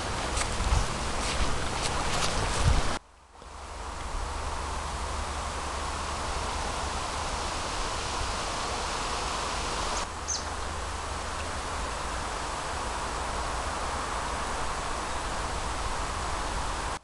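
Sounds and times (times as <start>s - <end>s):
river water rushing: 0.0s - 3.0s, 3.6s - 17.0s
wind rumble on microphone: 0.0s - 17.0s
high chirps: 9.8s - 10.5s.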